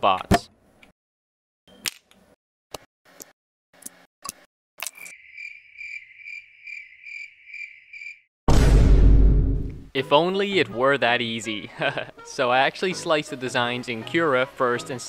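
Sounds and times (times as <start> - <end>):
cricket chirping: 4.9 - 8.3.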